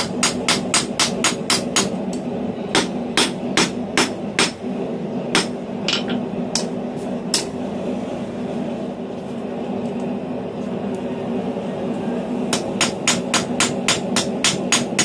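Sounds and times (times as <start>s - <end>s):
hammer striking steel on anvil: 0.0s - 2.0s, 5.3s - 6.7s, 12.5s - 15.0s
steady low hum: 0.0s - 15.0s.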